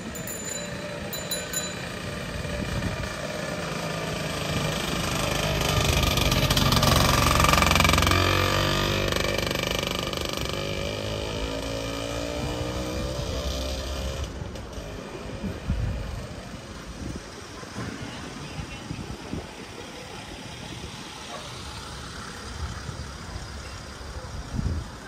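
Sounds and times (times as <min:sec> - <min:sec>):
vehicle engine passing by: 0:02.1 - 0:16.8.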